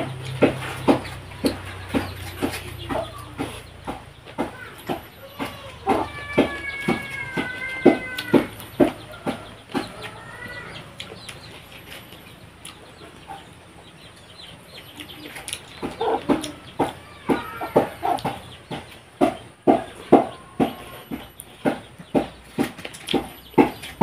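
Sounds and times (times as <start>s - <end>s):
chickens clucking: 0.0s - 24.0s
person chewing food: 10.8s - 13.6s, 14.9s - 16.7s.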